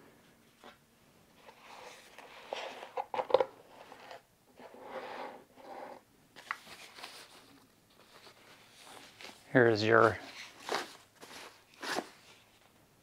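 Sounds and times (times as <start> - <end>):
foam wrap and cardboard rustling: 6.4 - 12.7.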